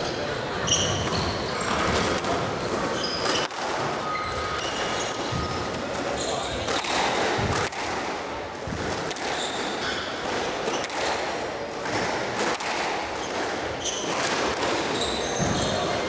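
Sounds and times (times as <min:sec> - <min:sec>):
shoes squeaking on hardwood floor: 0:00.0 - 0:06.9, 0:09.3 - 0:10.9, 0:13.2 - 0:16.0
squash ball hitting rackets and walls: 0:00.0 - 0:16.0.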